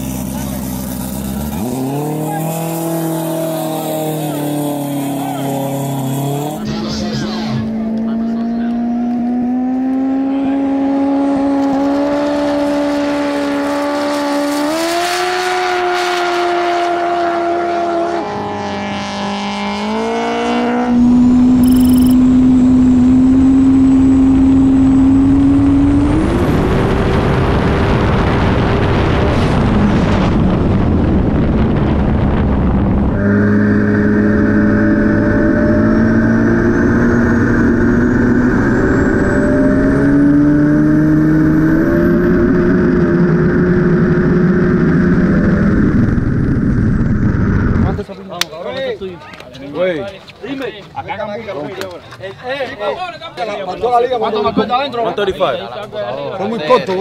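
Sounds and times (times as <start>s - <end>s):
jet ski engine running hard: 0.0s - 8.8s, 20.6s - 33.4s.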